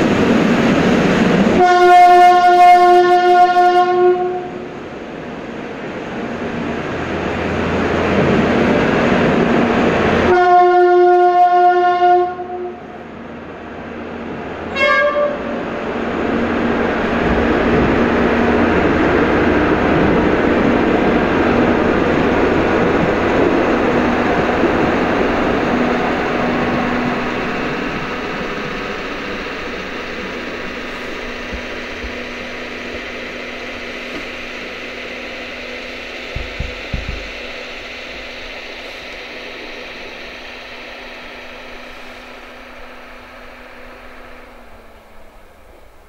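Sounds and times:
horn blasts: 0:01.6 - 0:04.7, 0:10.2 - 0:12.9, 0:14.7 - 0:15.6
short higher horn toot: 0:14.7 - 0:15.5
vehicle engine rumbling: 0:15.9 - 0:46.0.

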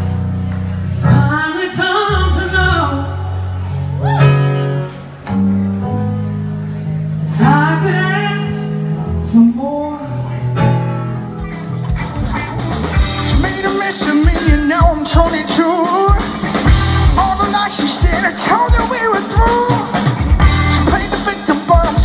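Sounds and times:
live rock band playing: 0:00.0 - 0:22.0
person singing: 0:00.9 - 0:04.8, 0:13.0 - 0:22.0
man singing: 0:13.1 - 0:22.0.

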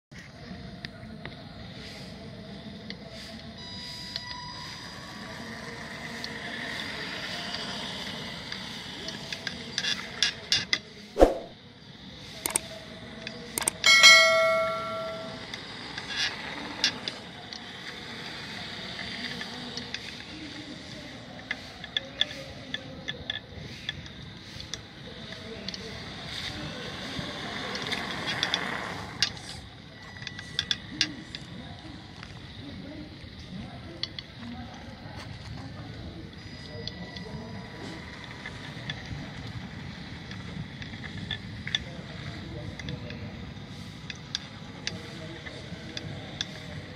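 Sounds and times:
whoosh: 0:11.2 - 0:11.6
sharp clicks: 0:12.4 - 0:12.7
bell ding: 0:13.8 - 0:15.6.

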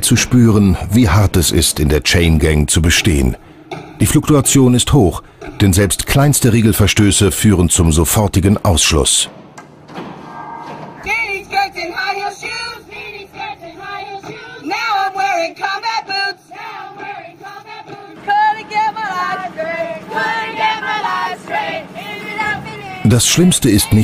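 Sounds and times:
women singing together: 0:11.0 - 0:24.0.

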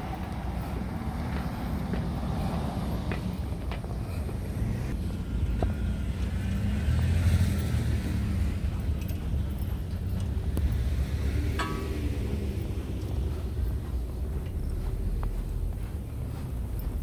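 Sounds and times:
steady low rumble: 0:00.0 - 0:06.9, 0:07.8 - 0:17.0
car driving past on snow: 0:04.1 - 0:17.0.

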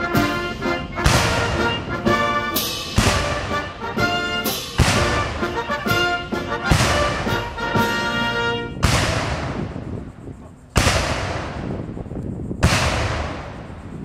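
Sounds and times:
military brass band music: 0:00.0 - 0:10.0
cannons firing with echo: 0:00.0 - 0:10.1, 0:10.7 - 0:14.0.

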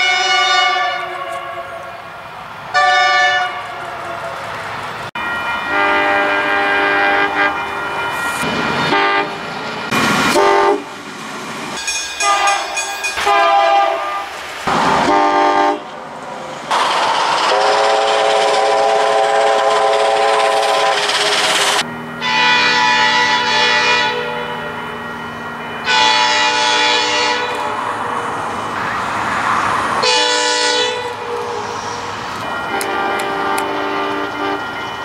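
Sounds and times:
locomotive horn blasts: 0:00.0 - 0:02.0, 0:02.7 - 0:04.3, 0:05.7 - 0:08.0, 0:08.9 - 0:09.4, 0:10.3 - 0:10.9, 0:12.2 - 0:14.4, 0:15.0 - 0:15.9, 0:17.6 - 0:21.1, 0:22.2 - 0:24.9, 0:25.8 - 0:28.2, 0:30.0 - 0:34.8.

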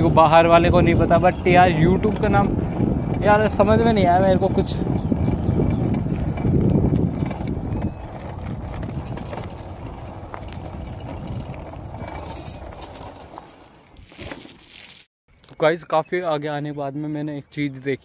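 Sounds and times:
wind buffeting microphone: 0:00.0 - 0:13.3
bicycle tyres rumbling on road: 0:00.0 - 0:15.1.

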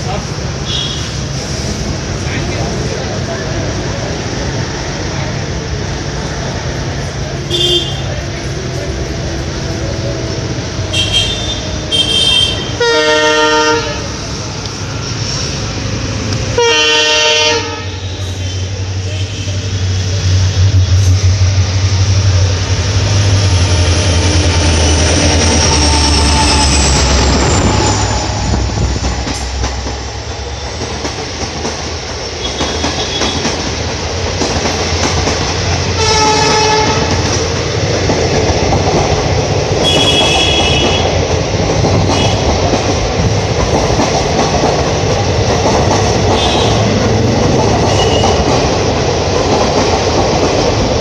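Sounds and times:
diesel locomotive engine drone: 0:00.0 - 0:51.0
train horn blast: 0:10.9 - 0:14.2, 0:16.6 - 0:19.7, 0:36.0 - 0:37.2, 0:39.8 - 0:41.2, 0:46.3 - 0:47.0, 0:47.9 - 0:48.4
train wheels clattering: 0:20.6 - 0:51.0.

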